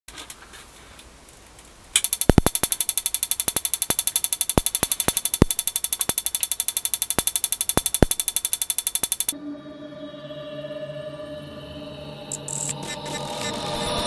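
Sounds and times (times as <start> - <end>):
rapid spark ignition ticking: 2.0 - 9.4.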